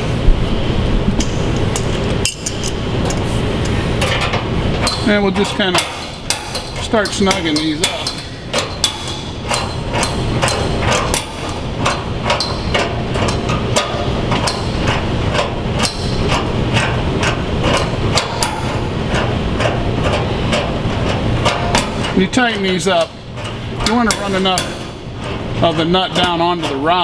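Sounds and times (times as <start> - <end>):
steady low hum: 0.0 - 27.0
wrench clicking: 4.0 - 22.1.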